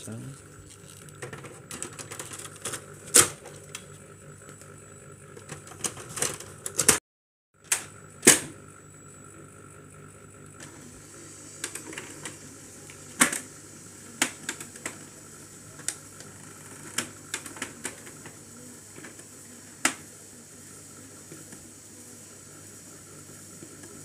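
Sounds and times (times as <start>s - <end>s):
laser printer clicking: 7.7s - 8.5s, 11.6s - 20.2s.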